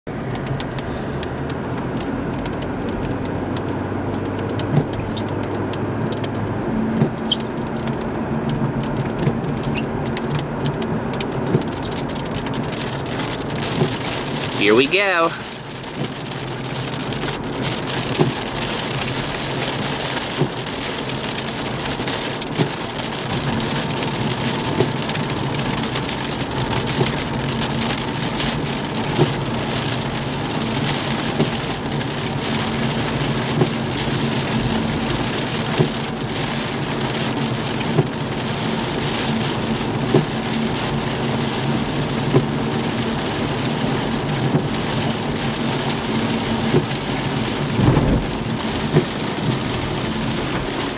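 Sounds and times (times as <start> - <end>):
rain on windshield: 0.1 - 50.9
tyre and road drone: 0.1 - 50.9
windshield wiper knock: 4.6 - 5.4, 6.9 - 7.3, 13.7 - 14.1, 18.1 - 18.4, 20.4 - 20.6, 29.1 - 29.4, 35.8 - 36.0, 42.3 - 42.6, 44.4 - 44.7, 46.6 - 47.0, 47.7 - 49.6.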